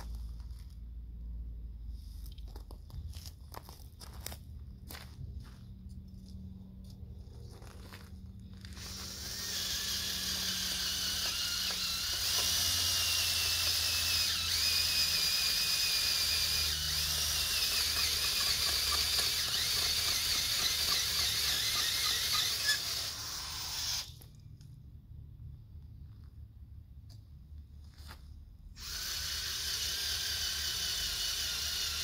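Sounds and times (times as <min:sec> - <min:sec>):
auger bit grinding dirt: 0:05.0 - 0:24.3, 0:28.8 - 0:32.0
cordless drill whining: 0:08.5 - 0:24.3, 0:28.8 - 0:32.0.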